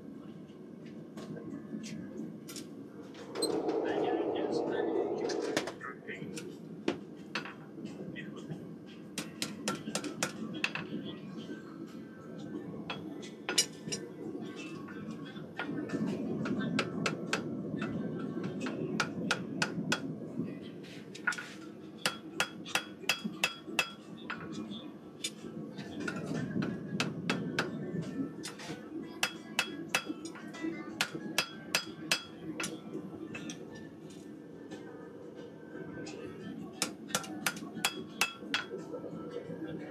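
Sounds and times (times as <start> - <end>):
hammer striking metal on anvil: 22.1 - 24.0, 31.0 - 32.3, 36.8 - 38.7.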